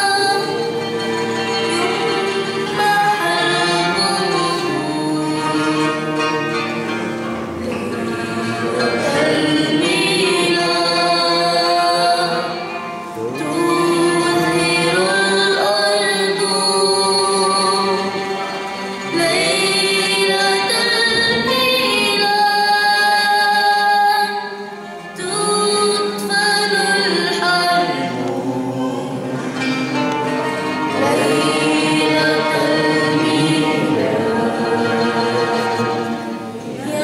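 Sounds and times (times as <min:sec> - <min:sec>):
girl singing into a microphone: 0:19.1 - 0:28.0.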